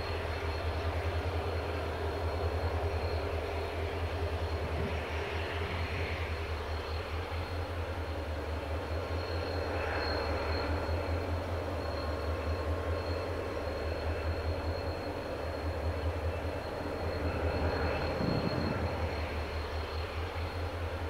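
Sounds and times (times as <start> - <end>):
distant train rumble: 0.0 - 21.0.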